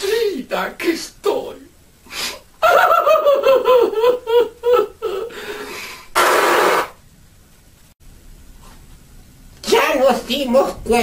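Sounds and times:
nose blowing: 5.6 - 7.0.

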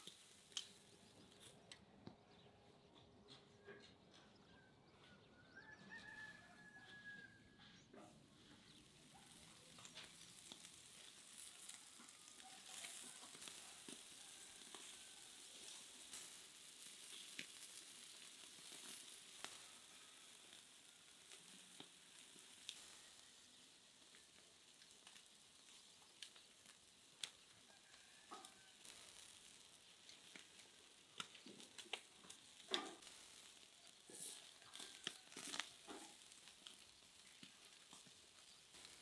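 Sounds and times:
meat sizzling on charcoal grill: 0.0 - 1.6, 8.0 - 39.0
fat crackling and popping: 0.0 - 2.2, 7.9 - 39.0
distant rooster crowing: 4.3 - 7.8, 11.6 - 15.8, 19.4 - 21.4, 27.5 - 29.1, 33.8 - 36.2.

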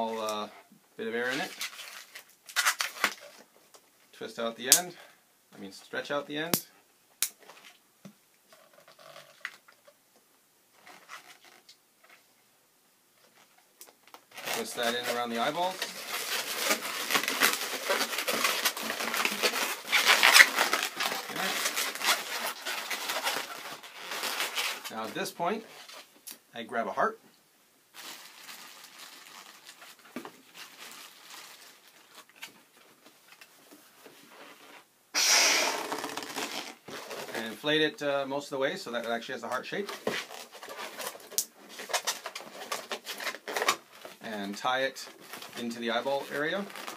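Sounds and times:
balloon squeaking and rubbing: 14.3 - 25.1, 35.2 - 37.6
rubber balloon snap: 35.2 - 36.8.

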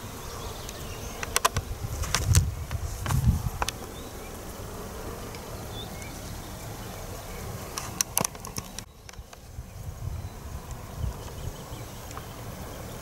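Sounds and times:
insects buzzing: 0.0 - 13.0
sharp clicks: 0.6 - 3.8, 7.7 - 9.4.

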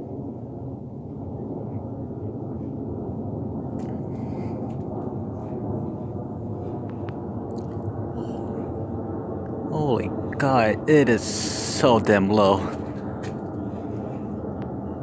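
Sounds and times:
jet airliner rumbling overhead: 0.0 - 15.0.

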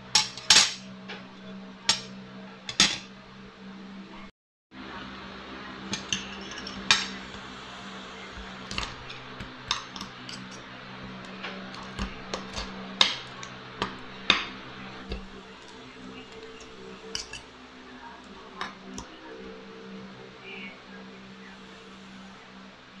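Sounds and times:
cutlery clinking on plate: 5.9 - 7.3, 15.1 - 17.4.

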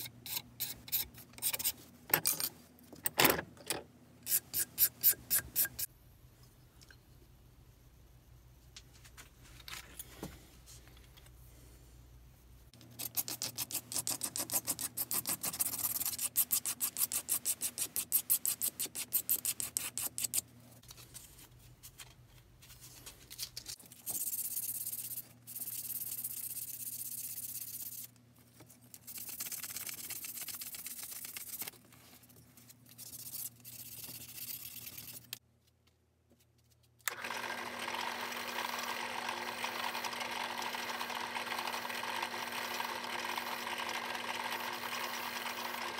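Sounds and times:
sandpaper rubbing strokes: 33.0 - 35.4.

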